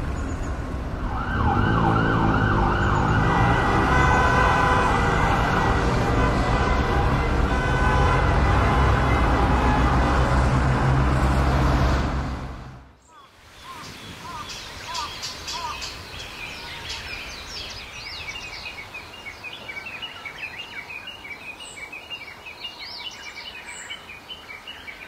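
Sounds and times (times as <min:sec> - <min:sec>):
heavy road traffic rumbling: 0:00.0 - 0:19.0
emergency siren wailing: 0:01.0 - 0:11.9.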